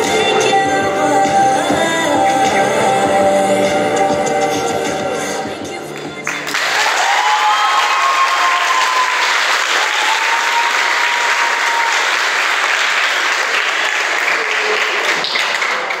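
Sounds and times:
audience clapping in tiled hall: 0:06.0 - 0:16.0.

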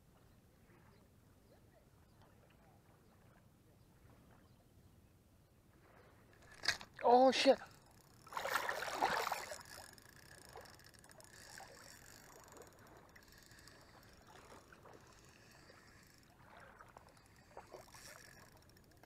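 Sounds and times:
water lapping: 0:05.7 - 0:19.0
fishing reel ticking: 0:06.3 - 0:19.0.

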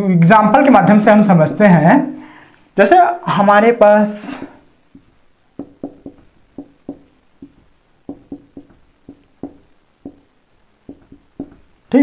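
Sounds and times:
marker squeaking on whiteboard: 0:04.9 - 0:11.8.

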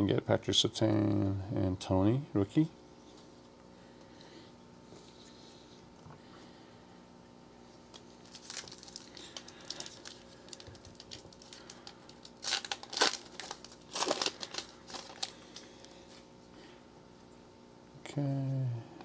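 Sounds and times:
foil wrapper crinkling and tearing: 0:07.8 - 0:16.3.

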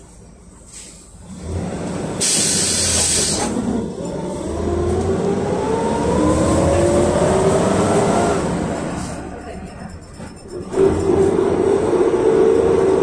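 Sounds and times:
bus engine whine and rumble: 0:00.0 - 0:13.0
loud air hiss: 0:02.2 - 0:03.6.

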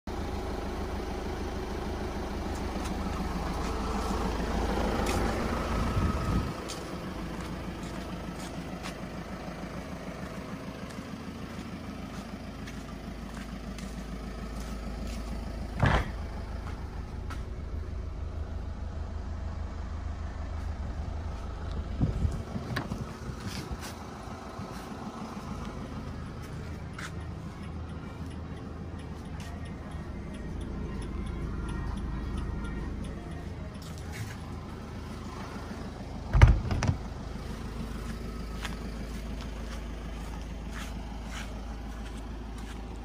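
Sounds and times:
vehicle engine idling: 0:00.0 - 0:43.0.

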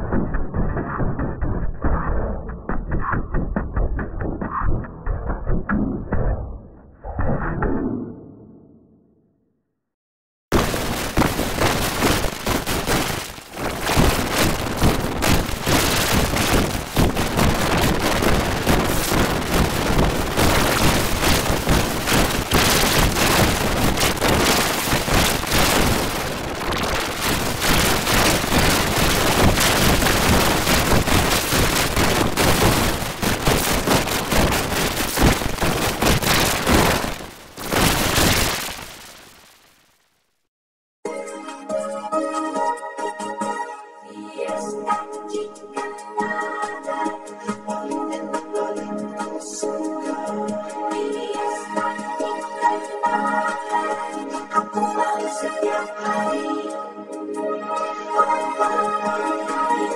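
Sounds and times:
harsh distorted crackling: 0:10.5 - 0:40.2.

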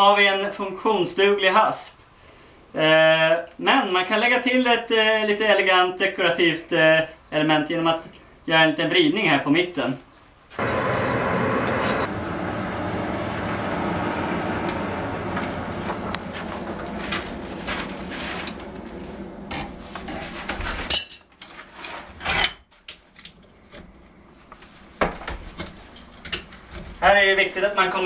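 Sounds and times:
forge blower rushing: 0:10.6 - 0:20.9.

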